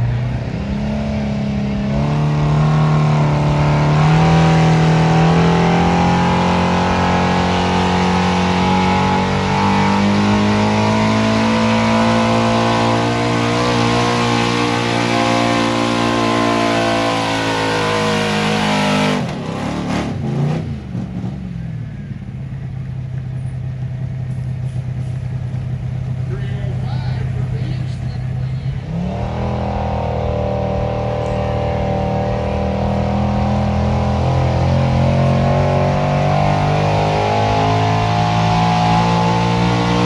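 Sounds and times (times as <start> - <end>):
pickup truck engine revving: 0.0 - 21.7, 25.0 - 40.0.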